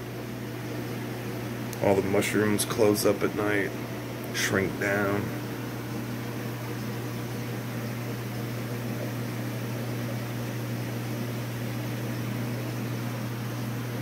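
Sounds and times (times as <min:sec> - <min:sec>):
aquarium pumps humming: 0:00.0 - 0:14.0.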